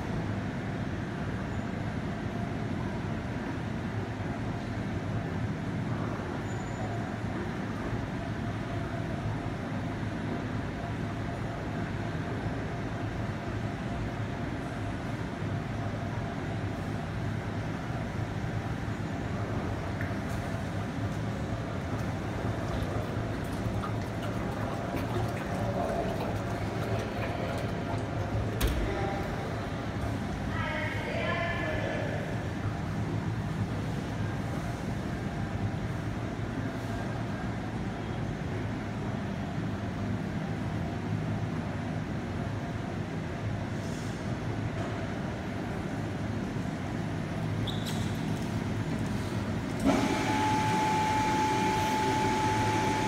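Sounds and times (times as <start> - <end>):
production line hum: 8.2 - 43.6, 48.5 - 53.0
machinery rumbling: 21.3 - 30.6
liquid batter sloshing: 22.7 - 28.5.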